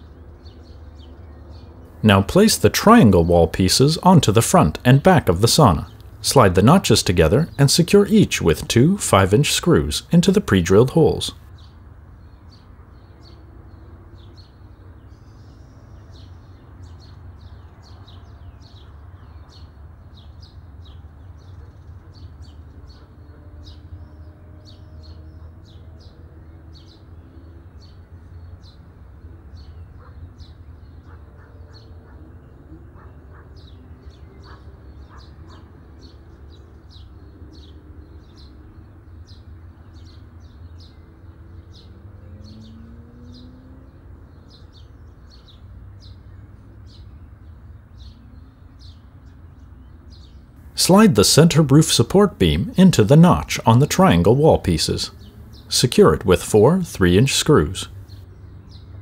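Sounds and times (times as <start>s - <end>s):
birds chirping: 0.0s - 59.0s.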